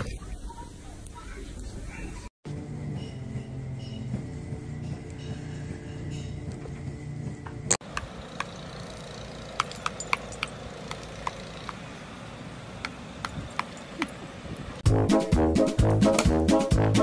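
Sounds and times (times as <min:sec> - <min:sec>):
light metallic clinks: 0:08.3 - 0:11.8, 0:13.2 - 0:14.3
brass jazz music: 0:14.8 - 0:17.0.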